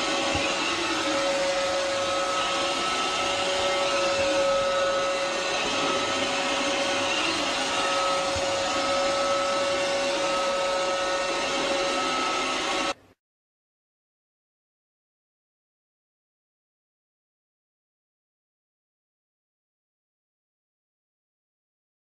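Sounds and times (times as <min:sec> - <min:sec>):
robot vacuum cleaner running: 0:00.0 - 0:13.0.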